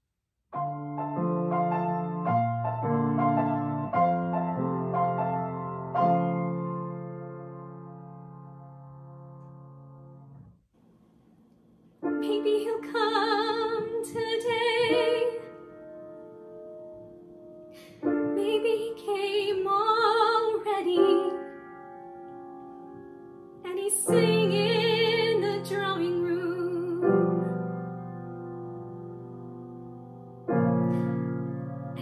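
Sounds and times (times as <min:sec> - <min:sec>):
grand piano accompaniment: 0:00.6 - 0:10.6, 0:12.0 - 0:32.0
soprano singing with vibrato: 0:12.1 - 0:15.7, 0:18.2 - 0:21.5, 0:23.6 - 0:27.4.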